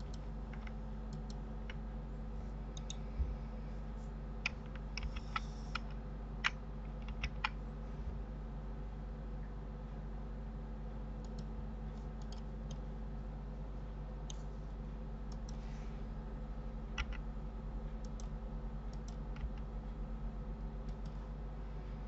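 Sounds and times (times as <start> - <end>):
steady low hum: 0.0 - 22.0
mouse and keyboard clicks: 4.4 - 7.6, 17.0 - 17.2.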